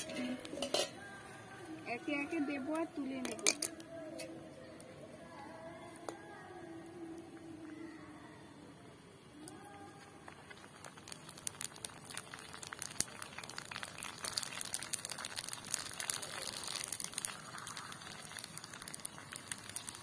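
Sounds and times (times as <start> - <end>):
deep-frying in hot oil: 0.0 - 1.1, 2.0 - 4.2, 9.4 - 20.0
oil crackling and popping: 0.0 - 1.2, 2.0 - 4.7, 9.3 - 20.0.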